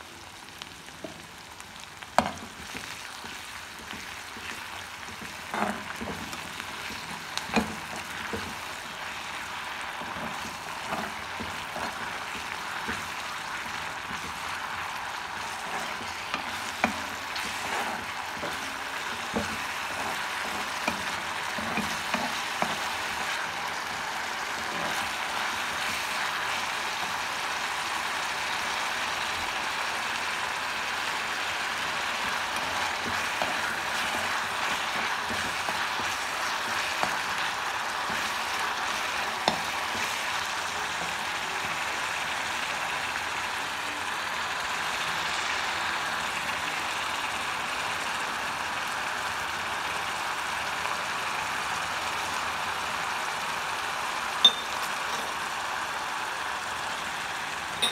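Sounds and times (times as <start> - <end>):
onions sizzling in hot oil: 0.0 - 57.9
metal spoon scraping a pan: 2.2 - 8.6, 15.5 - 23.0.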